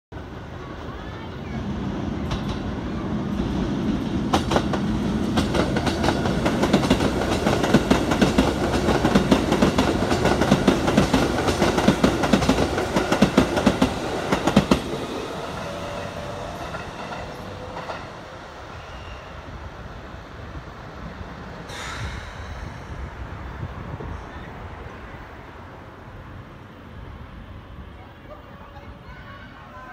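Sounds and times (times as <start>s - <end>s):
train rumble: 0.2s - 29.9s
train wheels clattering: 4.3s - 18.2s.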